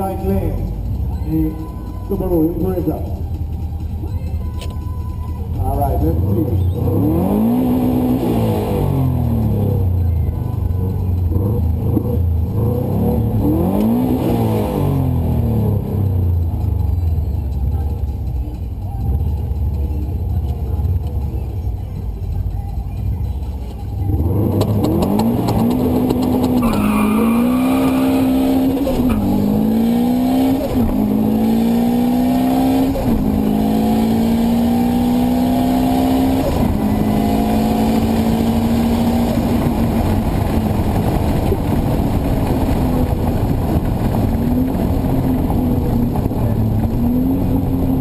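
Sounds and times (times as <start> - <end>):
road and wind noise: 0.0 - 48.0
race car engine accelerating: 6.1 - 9.9, 24.0 - 48.0.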